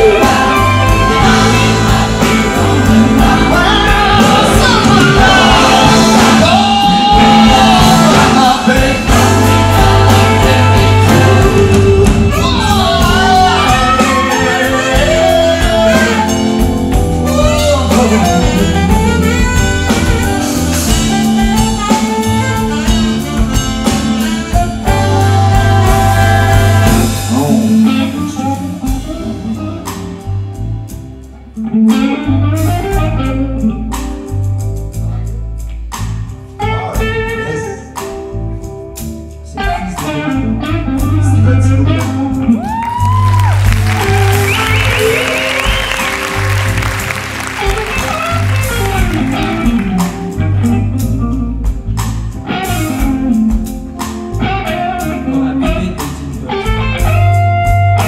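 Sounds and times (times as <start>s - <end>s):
backing choir: 0.0s - 16.8s, 42.9s - 50.0s
electric guitar: 0.0s - 35.9s, 36.7s - 58.0s
live band with singing: 0.0s - 58.0s.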